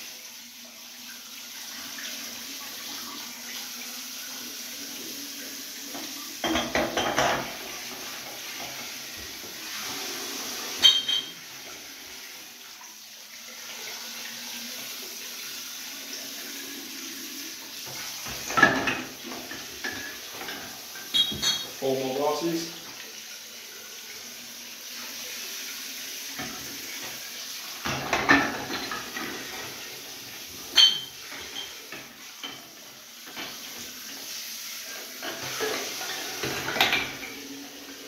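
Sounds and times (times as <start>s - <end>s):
glass bottles clinking: 6.4s - 7.6s, 10.8s - 11.4s, 18.4s - 21.9s, 27.9s - 29.2s, 30.7s - 31.8s.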